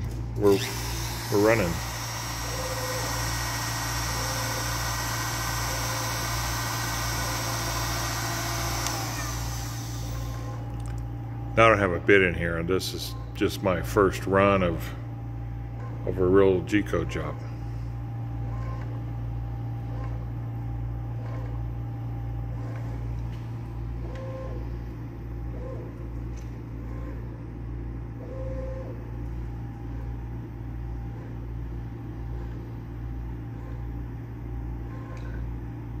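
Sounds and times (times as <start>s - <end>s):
stepper motors humming and whining: 0.0s - 11.6s.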